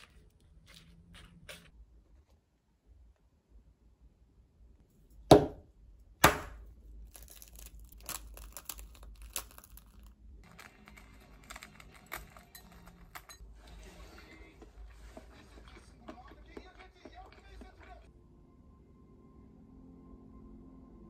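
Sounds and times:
eggshell crackling while peeled: 0:07.0 - 0:12.3
egg cracking on hard surface: 0:07.1 - 0:13.2.

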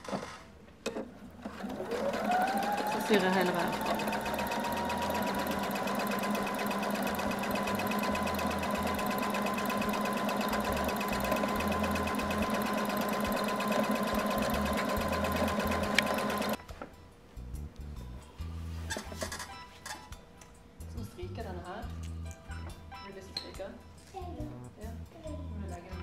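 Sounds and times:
sewing machine stitching: 0:01.4 - 0:16.6.

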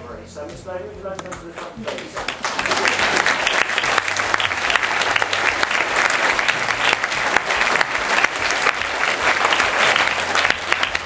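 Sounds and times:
crowd applauding: 0:01.8 - 0:11.0.

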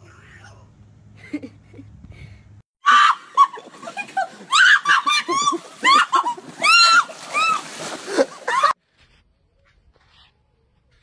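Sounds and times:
woman shrieking and laughing: 0:02.8 - 0:08.8.

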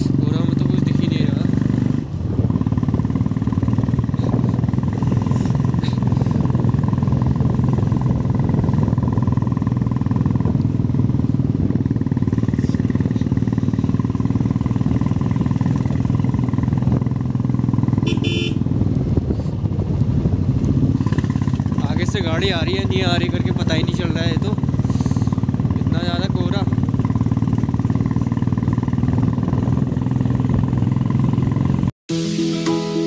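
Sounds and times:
motorcycle engine running: 0:00.0 - 0:31.9
short horn beep: 0:18.1 - 0:18.6.

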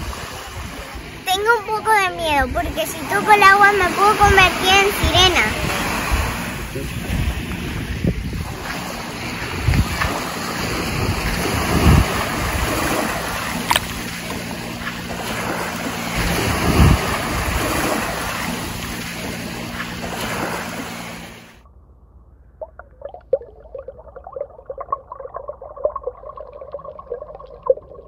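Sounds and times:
wind buffeting microphone: 0:00.0 - 0:21.0
small waves washing on shore: 0:00.0 - 0:21.6.

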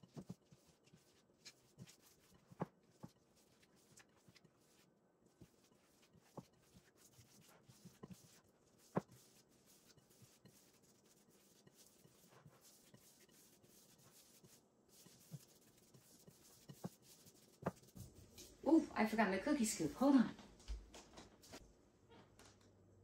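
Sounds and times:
hands kneading meat mixture: 0:00.0 - 0:18.7.

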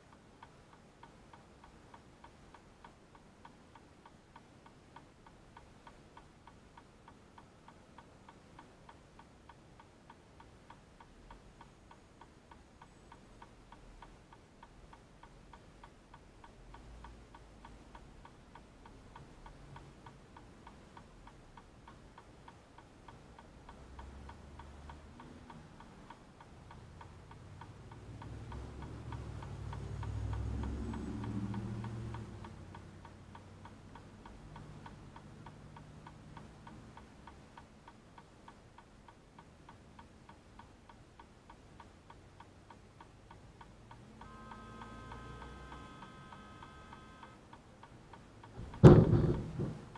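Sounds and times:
turn signal ticking: 0:00.0 - 0:49.9
low rumble of passing vehicles: 0:14.7 - 0:40.9, 0:41.7 - 0:49.9.

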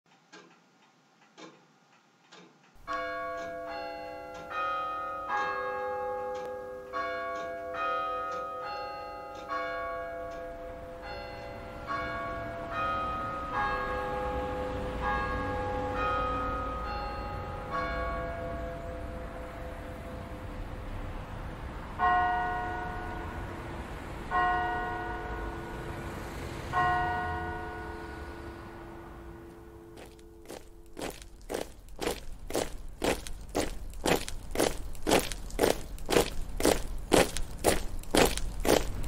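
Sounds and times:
church bells ringing: 0:02.8 - 0:20.5, 0:22.0 - 0:31.2.

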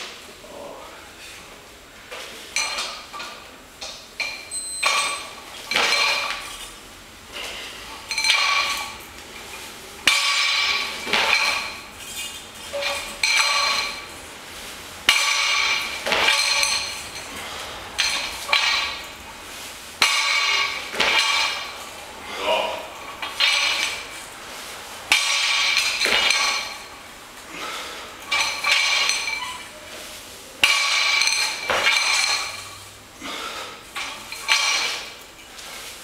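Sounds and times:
barbell plates clanking: 0:04.2 - 0:06.7, 0:07.5 - 0:14.2, 0:15.0 - 0:19.3, 0:20.0 - 0:22.0, 0:22.7 - 0:24.3, 0:25.1 - 0:27.0, 0:27.6 - 0:29.8, 0:30.6 - 0:35.6.

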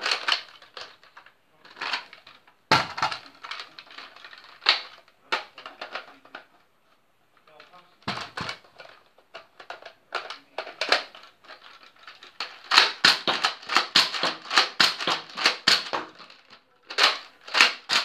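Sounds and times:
plastic clicks of toy blaster: 0:12.0 - 0:18.0
toy blaster pumped and fired: 0:12.6 - 0:16.1, 0:16.9 - 0:18.0.

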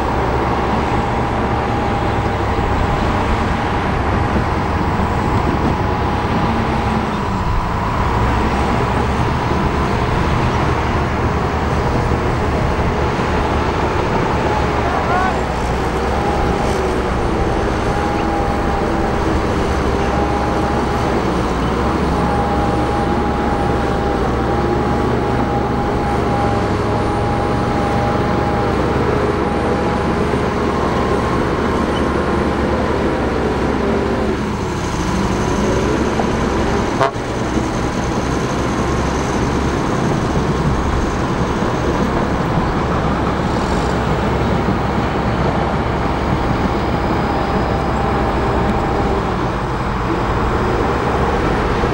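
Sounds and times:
bulldozer diesel engine running: 0:00.0 - 0:51.9.

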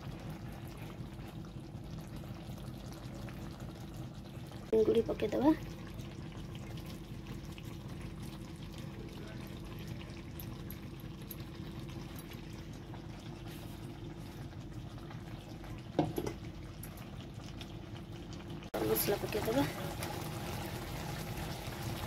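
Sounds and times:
curry bubbling in a pan: 0:00.0 - 0:22.0.

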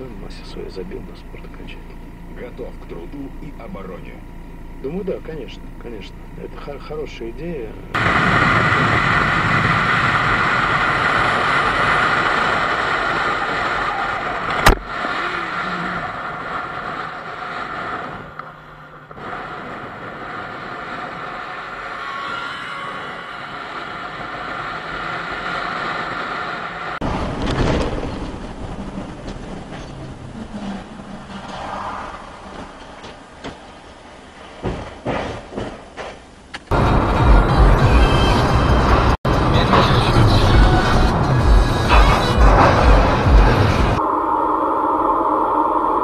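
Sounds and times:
motorcycle at highway speed: 0:00.0 - 0:35.6
car road and engine noise: 0:00.0 - 0:46.0
sharp crack: 0:08.0 - 0:15.2
wind rushing: 0:36.7 - 0:46.0.

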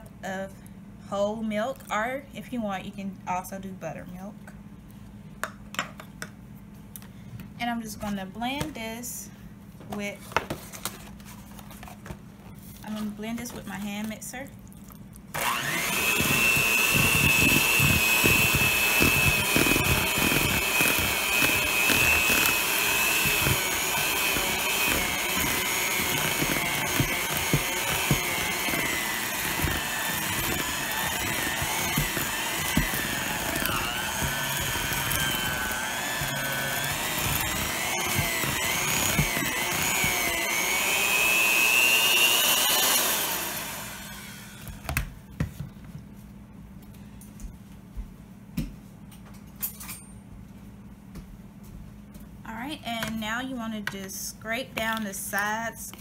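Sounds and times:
electric hand mixer whining: 0:15.3 - 0:45.0
mixer beaters clattering: 0:15.4 - 0:44.4.

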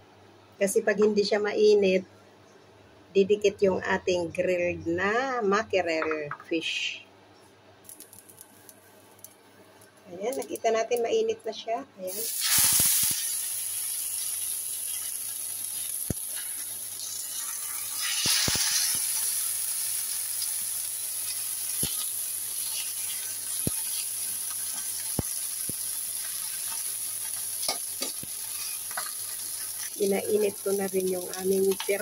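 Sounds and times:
fish fillets sizzling in a pan: 0:12.1 - 0:32.0
tongs clicking against a pan: 0:23.5 - 0:29.4, 0:30.7 - 0:32.0.

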